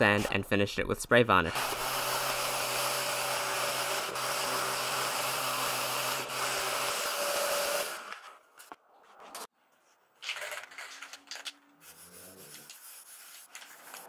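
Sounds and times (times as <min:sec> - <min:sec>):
random orbital sander sanding wood: 0:01.6 - 0:07.9.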